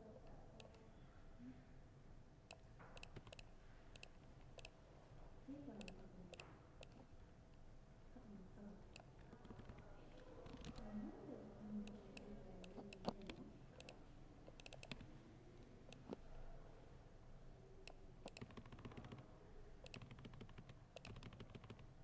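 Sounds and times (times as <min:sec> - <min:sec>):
laptop keyboard typing: 0:02.5 - 0:04.8, 0:09.0 - 0:11.0, 0:11.8 - 0:15.1, 0:17.8 - 0:22.0.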